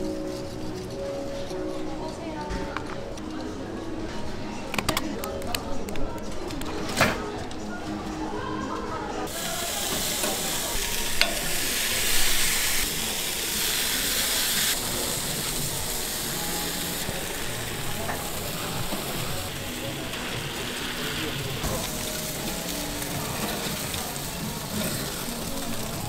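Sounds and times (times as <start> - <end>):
batter sizzling on griddle: 9.3 - 26.0.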